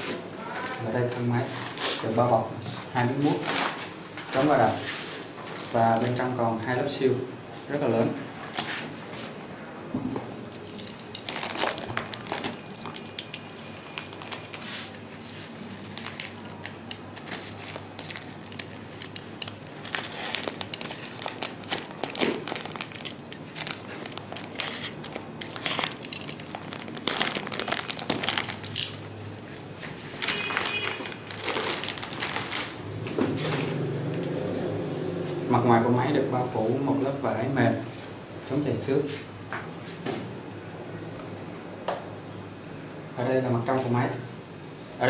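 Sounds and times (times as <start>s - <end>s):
plastic bag crinkling: 5.5s - 6.2s, 10.6s - 33.7s.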